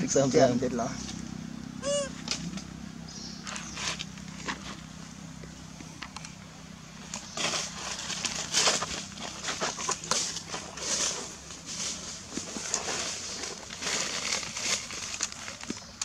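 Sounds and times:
dry leaves crunching and rustling: 3.4s - 5.0s, 7.0s - 16.0s.

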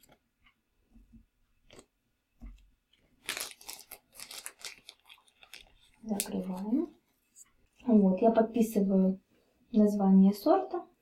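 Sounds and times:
plastic bag rustling and crinkling: 2.9s - 7.9s.

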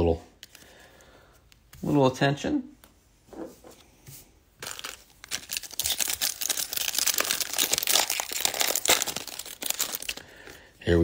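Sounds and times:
foil wrapper tearing and crinkling: 4.6s - 10.5s.

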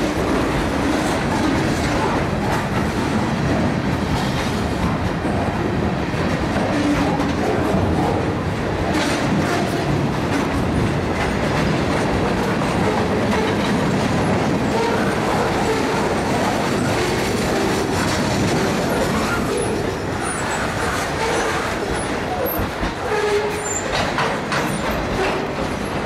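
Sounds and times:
freight cars rumbling on rails: 0.0s - 26.0s
wheel squeal: 22.4s - 24.0s.

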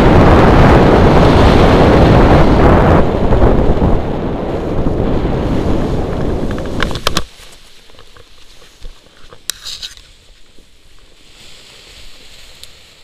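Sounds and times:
dry grass rustling: 5.4s - 13.0s
nylon fabric rustling: 6.5s - 13.0s.

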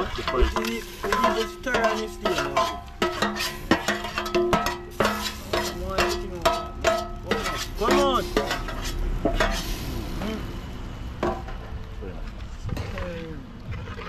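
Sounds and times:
metal spoon knocking metal pot: 0.0s - 9.6s.

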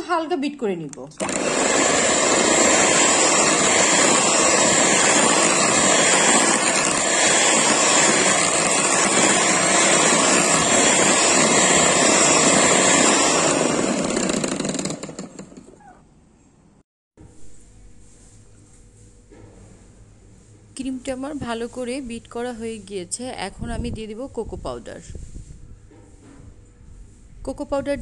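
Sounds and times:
electric hand mixer running: 1.2s - 15.8s.

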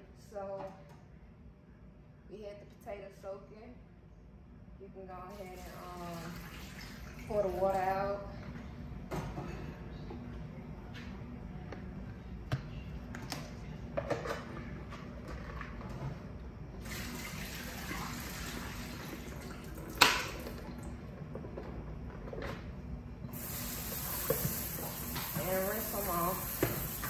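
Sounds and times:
water pouring into sink: 5.3s - 7.7s, 16.8s - 20.8s.

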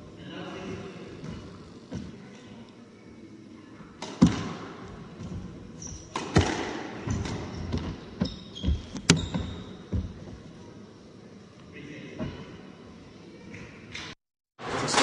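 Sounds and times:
shoe squeaks: 5.8s - 6.2s, 7.0s - 9.9s.

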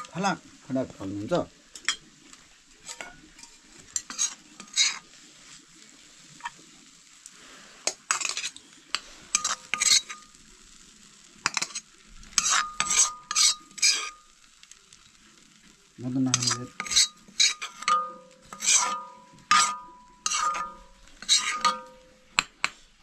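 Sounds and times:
metal spoon scraping metal plate: 2.8s - 5.0s, 8.1s - 8.6s, 9.3s - 10.3s, 11.5s - 11.8s, 12.4s - 14.2s, 16.3s - 22.1s.

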